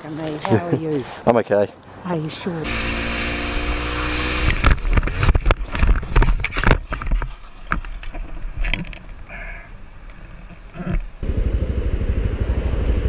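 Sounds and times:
motorcycle crash knocks and scrapes: 4.4 - 7.9
motorcycle engine running: 11.2 - 13.0.

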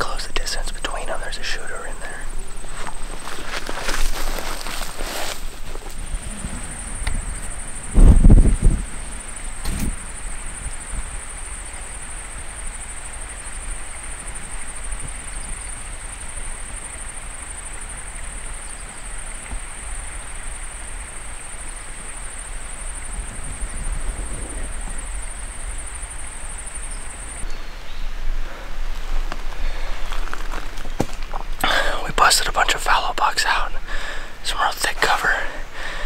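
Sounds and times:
wind rumbling on microphone: 0.0 - 31.6
high-pitched insect chorus: 0.0 - 36.0
footsteps through undergrowth: 2.6 - 6.2, 28.9 - 31.6.

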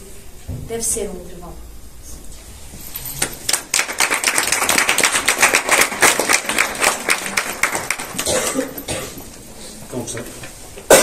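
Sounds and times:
audience clapping: 3.2 - 8.9.

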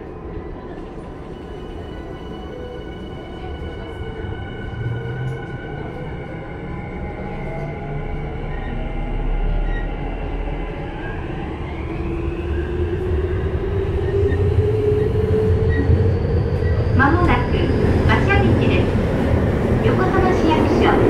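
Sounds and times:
train low rumble: 0.0 - 21.0.

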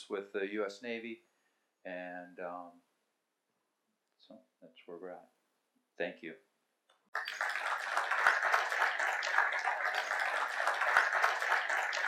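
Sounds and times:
audience applauding: 7.2 - 12.0.

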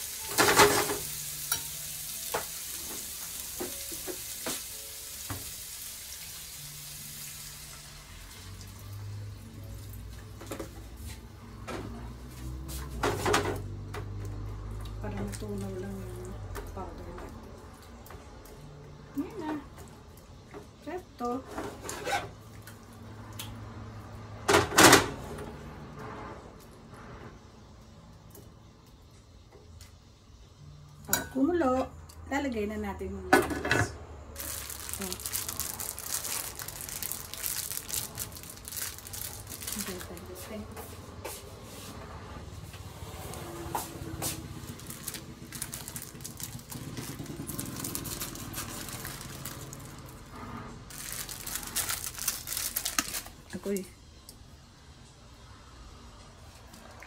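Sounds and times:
water boiling in a pan: 0.0 - 11.1, 34.4 - 40.2, 42.9 - 53.1
plastic packets crinkling: 34.4 - 40.4, 44.6 - 50.3, 50.9 - 53.8.

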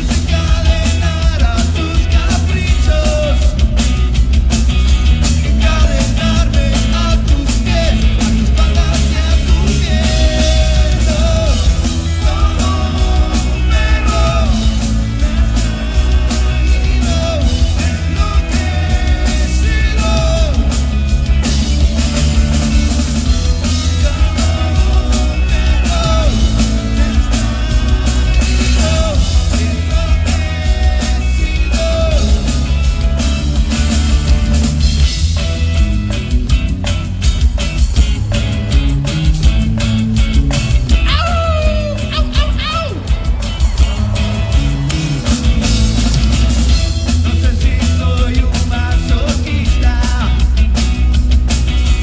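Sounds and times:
drum kit beating: 0.0 - 52.0
electric guitar: 0.0 - 52.0
heavy bass line: 0.0 - 52.0
rock band playing live: 0.0 - 52.0.

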